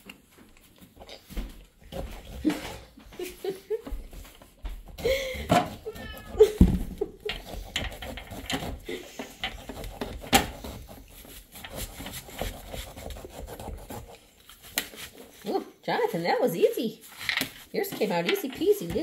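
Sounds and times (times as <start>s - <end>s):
knife scraping pumpkin: 0.2s - 3.0s, 4.9s - 16.2s
pumpkin thumping on countertop: 6.6s - 7.0s.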